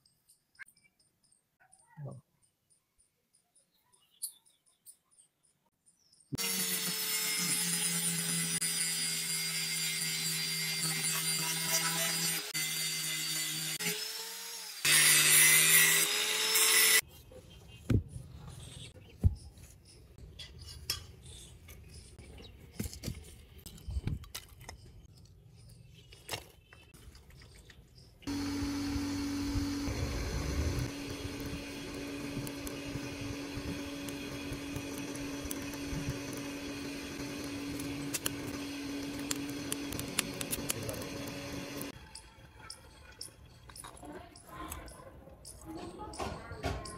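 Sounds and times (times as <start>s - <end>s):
angle grinder grinding steel: 6.4s - 17.0s, 28.3s - 43.8s
electric blower humming: 28.3s - 42.0s.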